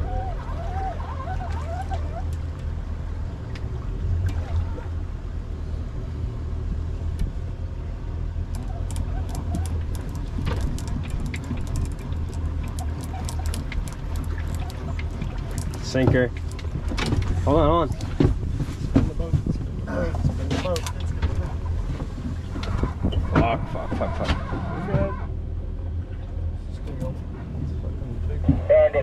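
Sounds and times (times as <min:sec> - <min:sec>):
outboard engines idling: 0:00.0 - 0:29.0
sharp clicks and ticks: 0:08.5 - 0:17.3.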